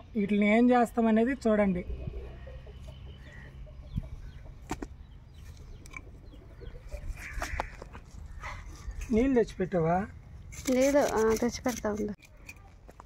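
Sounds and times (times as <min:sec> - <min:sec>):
chickens clucking: 0:01.8 - 0:09.0.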